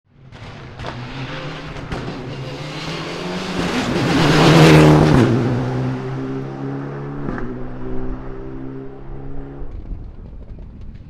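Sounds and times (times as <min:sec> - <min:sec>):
rally car passing at speed: 0:00.2 - 0:10.6.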